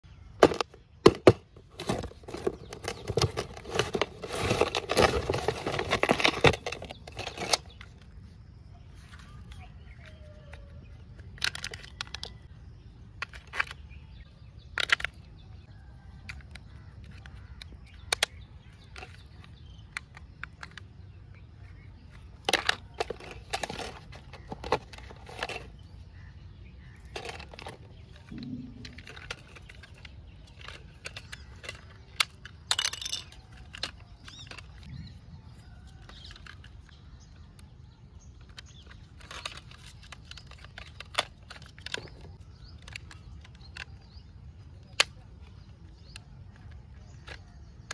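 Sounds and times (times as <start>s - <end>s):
cardboard box rustling: 1.2s - 7.8s
plastic toy clicks and taps: 16.3s - 19.2s.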